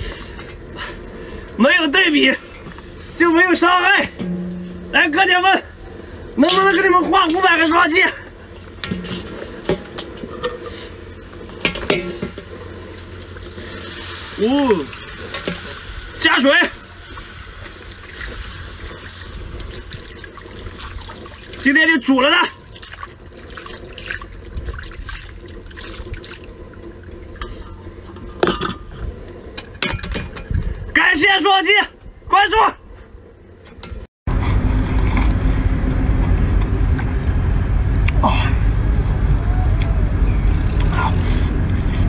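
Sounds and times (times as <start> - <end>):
low steady hum: 0.0 - 31.2
water pouring and splashing: 11.4 - 27.4.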